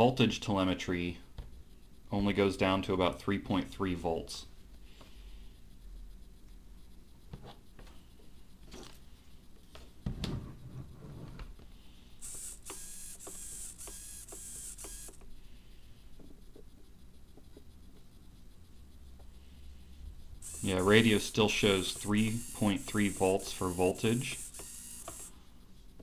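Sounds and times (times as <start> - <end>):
servo buzzing: 12.2 - 15.3, 20.4 - 25.5.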